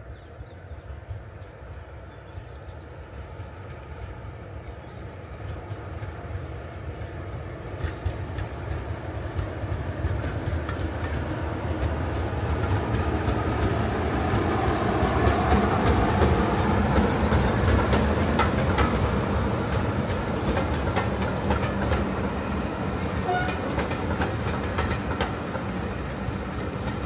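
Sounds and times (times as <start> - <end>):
diesel locomotive engine drone: 0.0 - 27.0
wheels clicking over rail joints: 5.2 - 22.4, 23.0 - 27.0.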